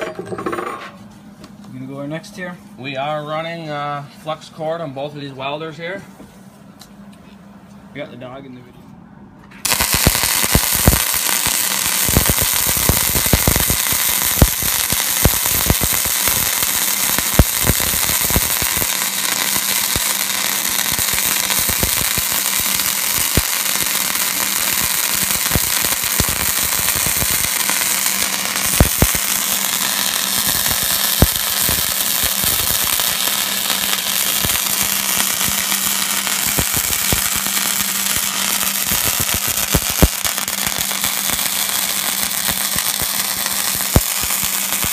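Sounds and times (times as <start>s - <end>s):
steady low hum: 0.0s - 44.8s
sharp spatter pops: 9.6s - 44.9s
welder arc crackle: 9.6s - 44.9s.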